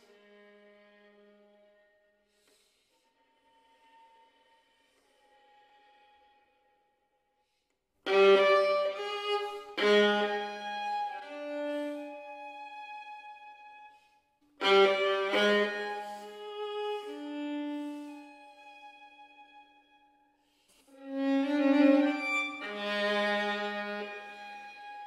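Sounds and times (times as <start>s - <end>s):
violin chords: 8.1s - 14.0s, 14.6s - 20.0s, 21.0s - 25.0s
violin sustained note: 8.1s - 19.8s.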